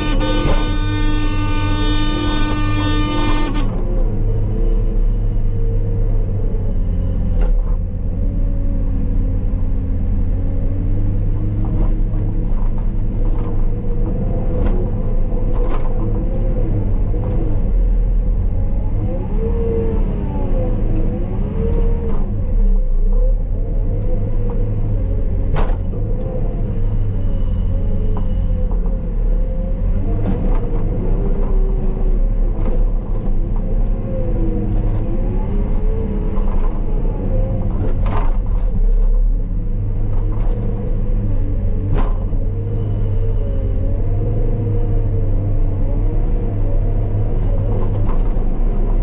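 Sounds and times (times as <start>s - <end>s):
horn: 0.0s - 3.8s
diesel engine under load: 0.0s - 49.0s.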